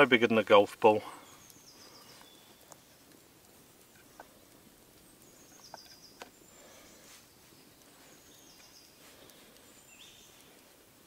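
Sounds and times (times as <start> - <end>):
bird chirping: 0.8 - 3.2, 3.8 - 10.8
small clicks: 1.4 - 6.7, 7.8 - 10.7.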